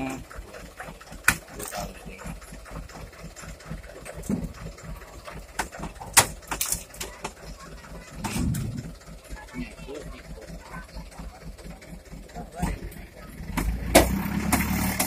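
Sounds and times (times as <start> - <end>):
diesel truck engine idling: 0.0 - 15.0
sharp clicks and knocks: 3.4 - 7.5.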